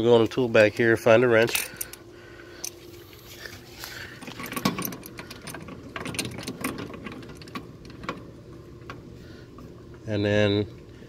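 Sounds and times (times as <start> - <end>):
metal tools clinking: 1.4 - 2.0.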